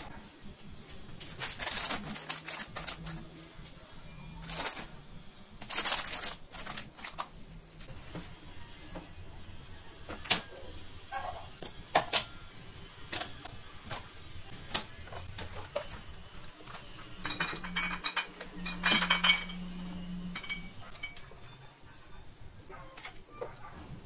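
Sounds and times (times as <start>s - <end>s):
dishes and utensils clinking: 16.6s - 21.7s.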